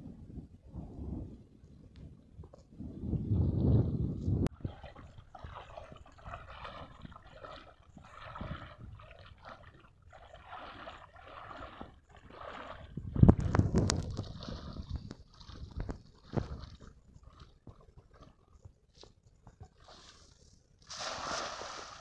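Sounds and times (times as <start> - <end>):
wading water sloshes: 4.4 - 22.0.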